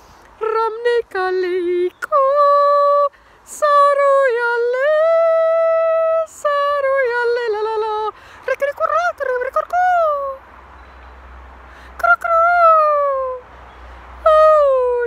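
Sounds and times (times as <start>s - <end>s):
sharp breaths: 0.0s - 0.4s, 3.1s - 3.5s, 8.1s - 8.5s, 10.7s - 12.0s
woman singing long held notes: 0.3s - 10.4s, 11.9s - 13.5s, 14.2s - 15.0s.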